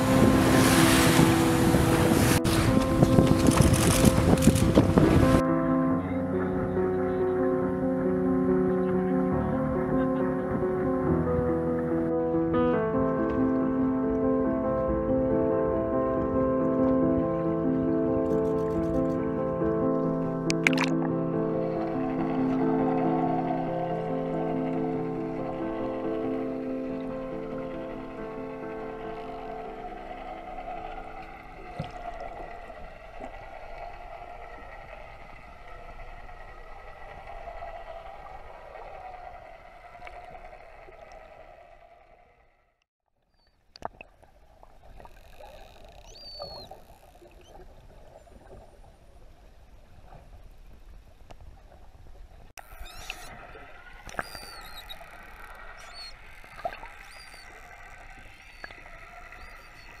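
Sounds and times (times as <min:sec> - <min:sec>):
underwater hum: 0:00.0 - 0:42.7, 0:43.4 - 1:00.0
dolphin clicks: 0:18.2 - 0:19.3, 0:44.9 - 0:47.5, 0:52.6 - 1:00.0
dolphin whistles: 0:45.2 - 0:47.6, 0:52.6 - 1:00.0.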